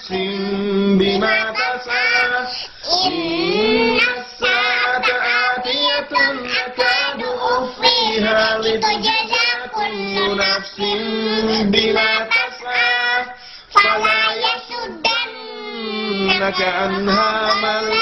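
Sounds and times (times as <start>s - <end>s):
man reciting: 0.0s - 18.0s
girl chanting melodic recitation: 3.8s - 18.0s.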